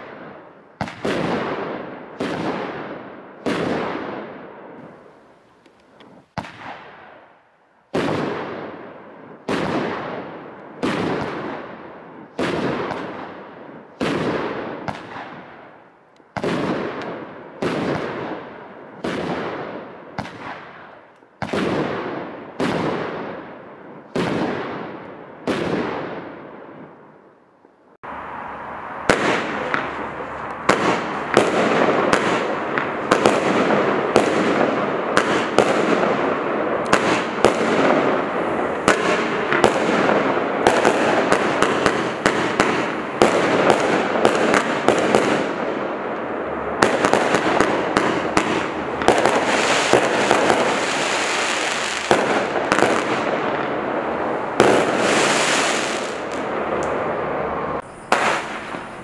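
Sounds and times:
firework launch and burst bangs: 0.0s - 5.1s, 6.2s - 7.2s, 7.9s - 15.6s, 16.3s - 27.0s, 29.0s - 56.8s, 57.8s - 59.0s
firework crackling hiss: 28.1s - 57.2s, 57.8s - 59.0s.

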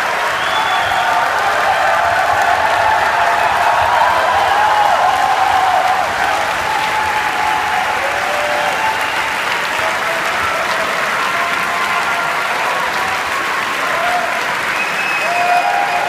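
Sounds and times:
audience applauding: 0.0s - 16.0s.

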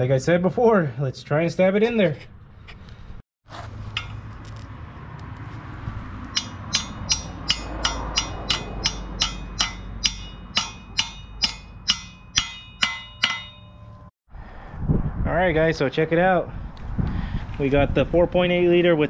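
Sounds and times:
ratchet wrench clicking: 6.3s - 13.5s.

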